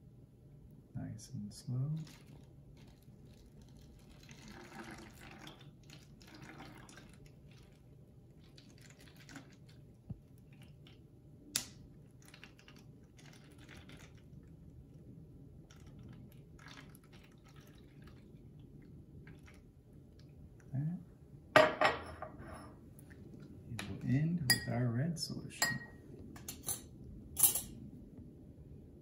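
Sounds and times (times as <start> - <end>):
liquid trickling through funnel: 2.0 - 11.0, 12.1 - 20.7.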